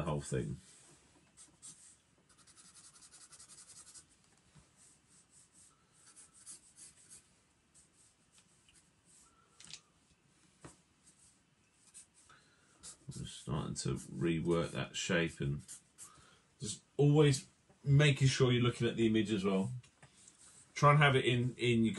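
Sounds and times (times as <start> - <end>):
marker pen scratching on paper: 1.3 - 4.1, 4.8 - 7.2, 11.0 - 12.2, 12.8 - 14.7, 15.6 - 16.2.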